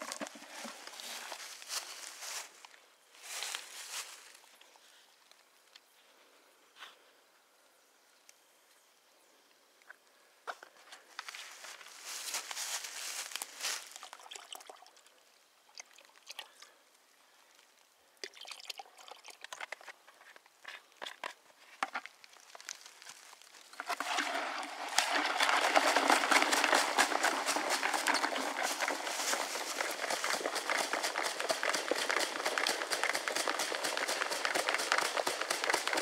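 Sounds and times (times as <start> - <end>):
water pouring: 13.9 - 15.1, 18.2 - 19.7, 23.7 - 34.4
water sloshing in a bucket: 23.7 - 34.2.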